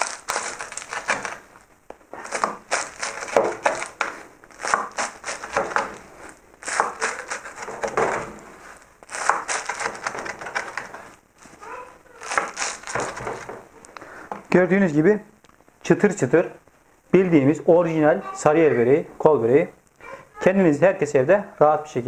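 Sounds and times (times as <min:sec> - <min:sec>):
knife crunching through crisp pastry: 0:00.0 - 0:11.6, 0:12.2 - 0:13.4.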